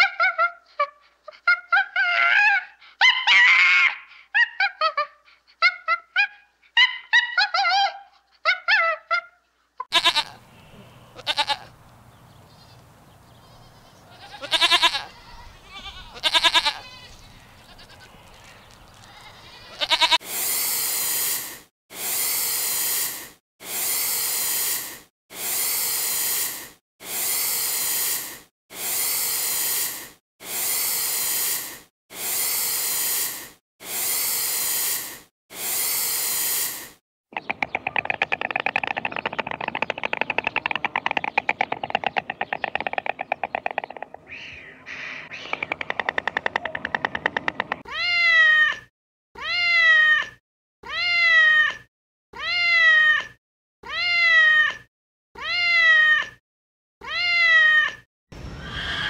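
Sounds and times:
goat bleating: 9.9 - 10.4, 11.1 - 11.8, 12.6 - 20.2
iguana hissing: 20.2 - 37.0, 44.3 - 46.6
fast rattling: 37.4 - 44.0.

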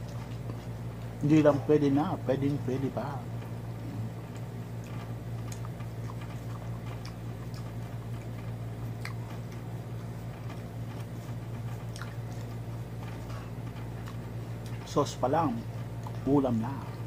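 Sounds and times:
man chewing food: 0.0 - 1.2, 3.4 - 14.9, 15.6 - 16.3
steady low hum: 0.0 - 17.0.

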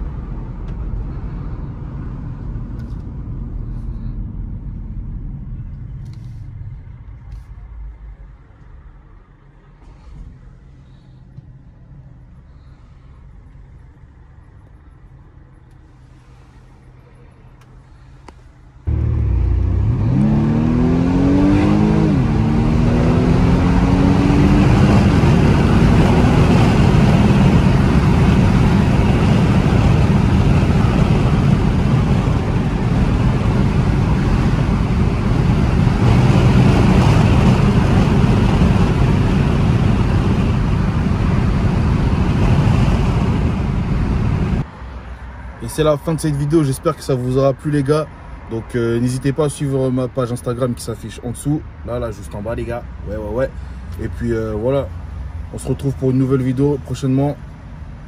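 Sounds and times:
engine and road noise at speed: 0.0 - 58.0
car engine accelerating hard: 18.8 - 44.7.

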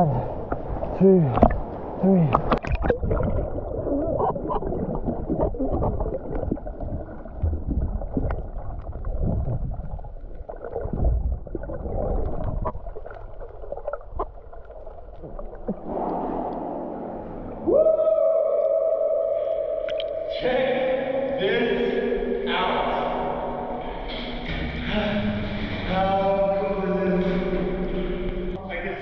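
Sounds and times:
water rushing underwater: 0.1 - 20.3
bubbles: 0.4 - 17.7, 19.4 - 20.3
steady hum: 15.3 - 18.6.

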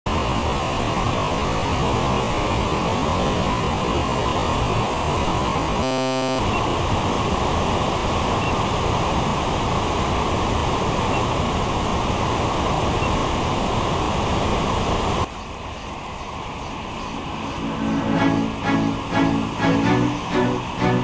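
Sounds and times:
waterfall rushing: 16.0 - 21.0.

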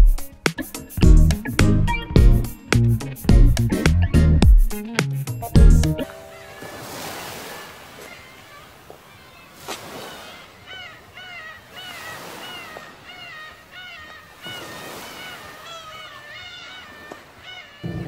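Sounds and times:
surf washing over rocks: 6.1 - 10.8, 11.7 - 13.2, 14.2 - 16.1.

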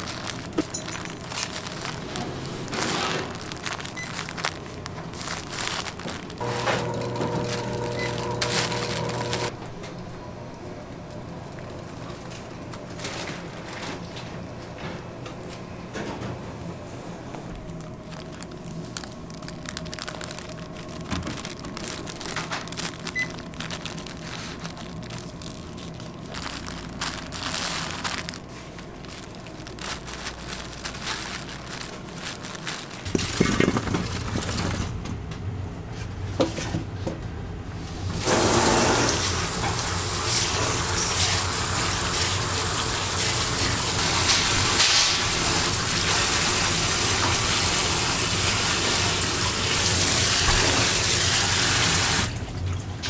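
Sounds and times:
parchment paper rustling: 0.0 - 9.5, 16.8 - 35.0.

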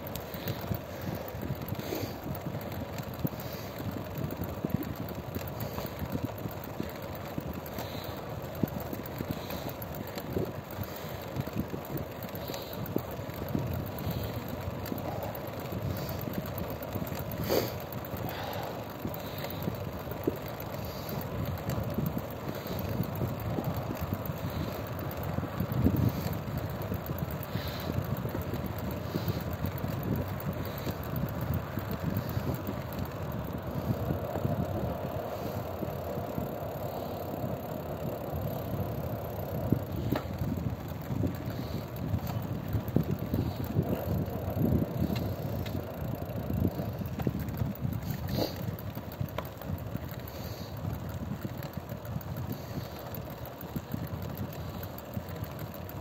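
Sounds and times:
faint ticking: 0.0 - 56.0
road and engine rumble: 0.0 - 56.0
wind on microphone: 18.2 - 48.6.

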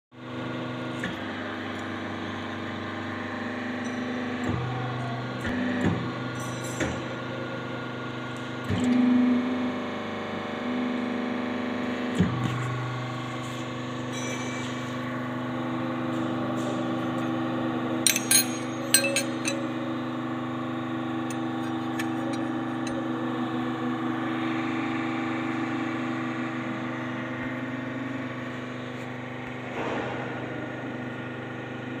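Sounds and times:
motor and pump humming: 0.2 - 32.0
metal clinks: 18.1 - 19.8.

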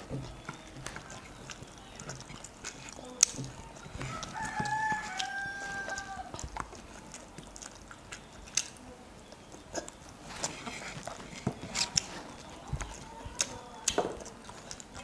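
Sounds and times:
eating by hand clicks and smacks: 0.0 - 15.0
rooster crowing: 4.0 - 6.4.

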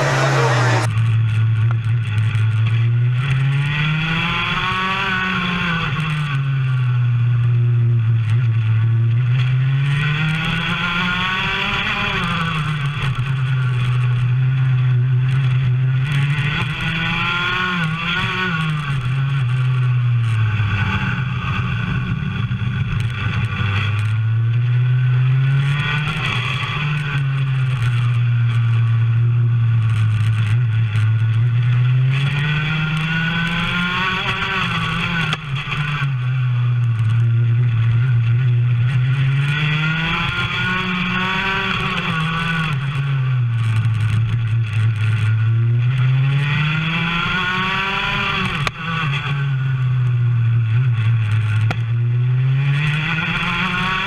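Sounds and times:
kart engine revving: 0.0 - 1.1, 32.1 - 36.0, 39.5 - 42.8, 46.4 - 49.4, 52.8 - 54.0.

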